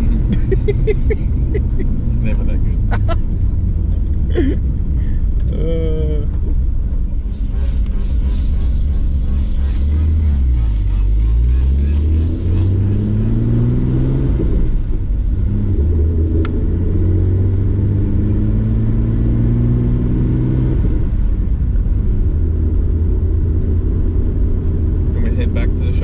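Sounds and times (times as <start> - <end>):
car engine from inside cabin: 0.0 - 26.0.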